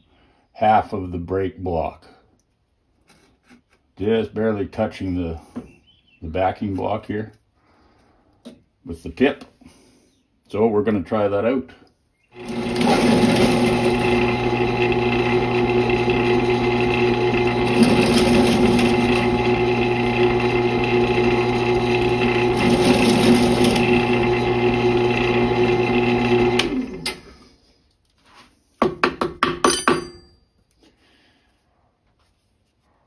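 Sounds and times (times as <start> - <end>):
drill bit cutting: 12.4 - 27.2
drill press motor running: 12.4 - 27.3
motor winding down: 12.4 - 27.3.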